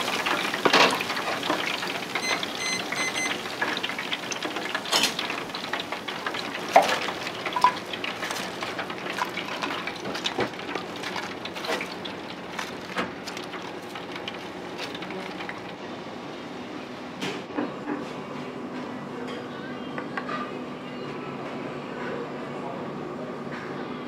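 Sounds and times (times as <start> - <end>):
short electronic beeps: 2.2 - 3.4
oil crackling and hissing: 3.4 - 15.9.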